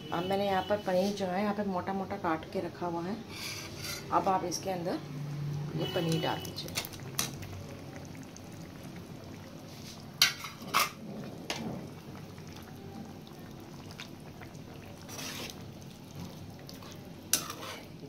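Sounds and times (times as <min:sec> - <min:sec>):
spoon scraping pan: 0:03.3 - 0:04.4, 0:09.8 - 0:11.0, 0:15.0 - 0:18.0
gravy simmering: 0:03.3 - 0:18.0.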